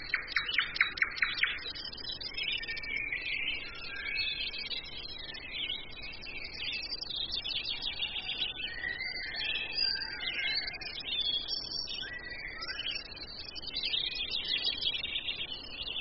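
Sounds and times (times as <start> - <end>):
songbirds chirping and trilling: 0.0 - 16.0.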